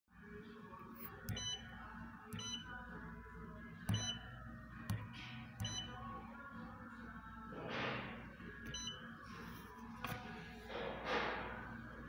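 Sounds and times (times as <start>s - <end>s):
touch screen clicks: 1.1s - 1.6s, 2.4s - 2.7s, 3.9s - 4.2s, 4.9s - 6.0s, 8.7s - 9.0s
short high beeps: 3.9s - 4.2s, 5.6s - 5.9s.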